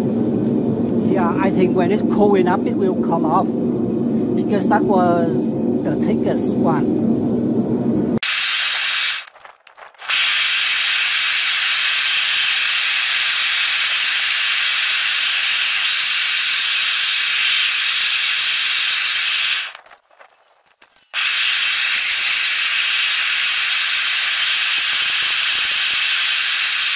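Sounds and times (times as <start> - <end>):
gas burner hissing: 10.0 - 19.8, 21.1 - 26.9.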